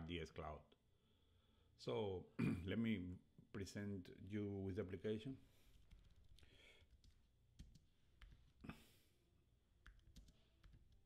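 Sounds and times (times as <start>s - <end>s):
person breathing: 0.9s - 1.8s, 5.4s - 7.0s, 8.0s - 9.3s.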